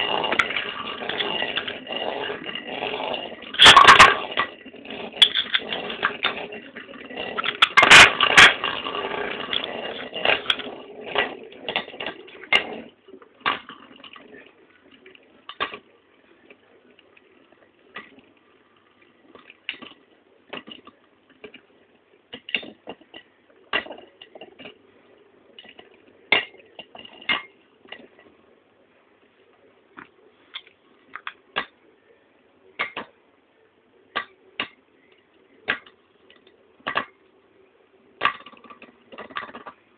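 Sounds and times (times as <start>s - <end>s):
metal wheels clacking: 0.0s - 14.2s
spinning tops whirring: 0.0s - 15.9s.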